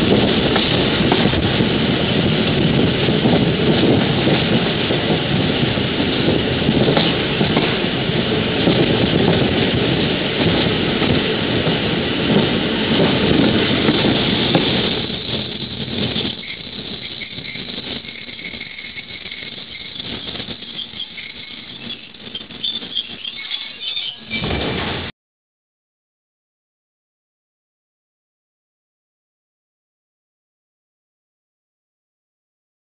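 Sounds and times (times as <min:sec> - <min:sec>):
train rattle: 0:00.0 - 0:25.1
train running on tracks: 0:00.0 - 0:25.1
faint high squeal: 0:16.3 - 0:24.6.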